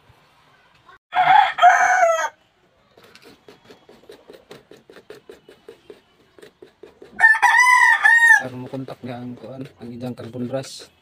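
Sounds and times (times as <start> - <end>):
rooster crowing: 1.1 - 2.4, 7.2 - 8.4
sandpaper scratching metal: 3.0 - 11.0.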